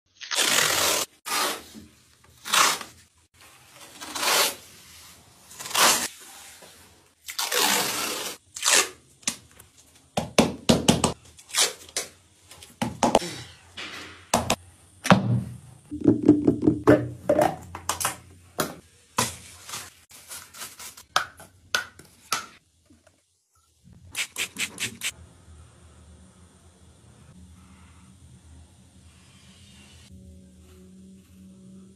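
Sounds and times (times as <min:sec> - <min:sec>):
masking tape ripping: 0:00.2 - 0:01.6, 0:05.5 - 0:06.1, 0:07.2 - 0:09.0, 0:11.4 - 0:12.0.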